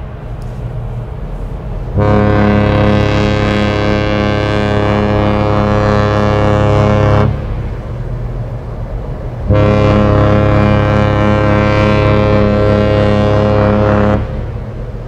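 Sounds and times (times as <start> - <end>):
ship horn blasts: 0.5 - 15.0.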